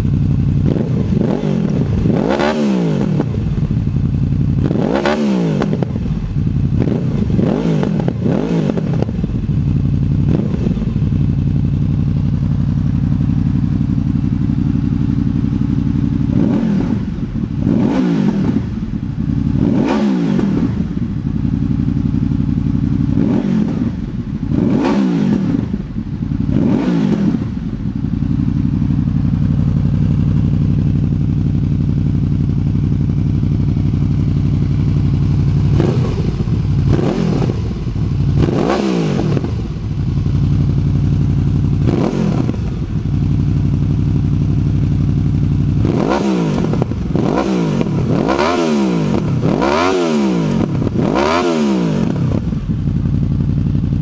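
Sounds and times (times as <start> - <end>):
motorcycle engine idling and revving: 0.0 - 54.0.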